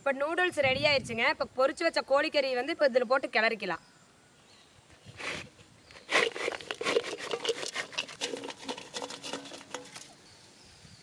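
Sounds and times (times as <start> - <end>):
spoon scraping cooking pot: 5.2 - 10.1.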